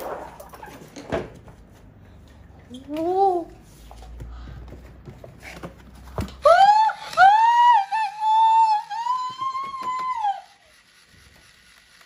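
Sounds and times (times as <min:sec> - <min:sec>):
woman screaming: 0:06.4 - 0:10.6.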